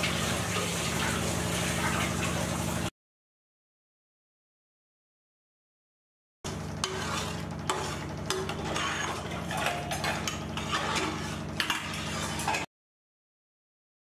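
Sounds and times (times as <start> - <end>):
steady low hum: 6.5 - 12.6
liquid bubbling in pot: 6.5 - 12.7
metal ladle scraping metal pot: 6.5 - 12.7.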